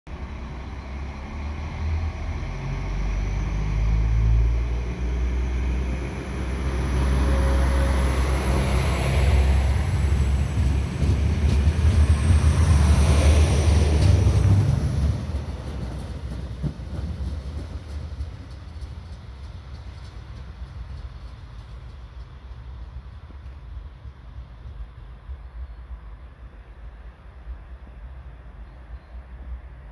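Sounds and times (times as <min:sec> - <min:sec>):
diesel train engine rumbling: 0:00.1 - 0:29.9.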